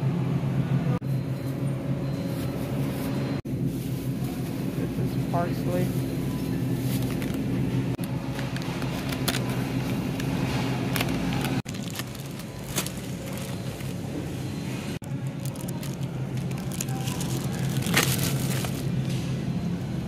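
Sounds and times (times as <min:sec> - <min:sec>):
groceries shifting in metal cart: 0:08.2 - 0:14.4, 0:15.0 - 0:19.3
plastic bags crinkling: 0:10.9 - 0:14.2, 0:15.2 - 0:19.0.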